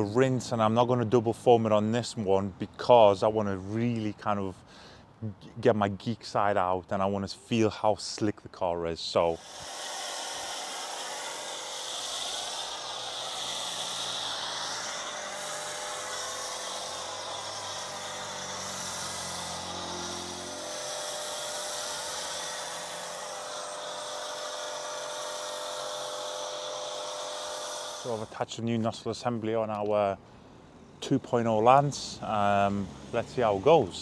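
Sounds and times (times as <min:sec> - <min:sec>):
foam spraying hiss: 0:09.2 - 0:28.4
pressure washer motor hum: 0:09.3 - 0:28.4
low hum: 0:10.3 - 0:28.3.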